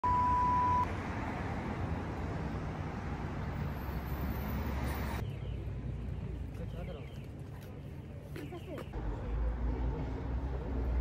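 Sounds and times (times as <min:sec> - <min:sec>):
short steady beep: 0:00.0 - 0:00.9
road traffic rumble: 0:00.0 - 0:11.0.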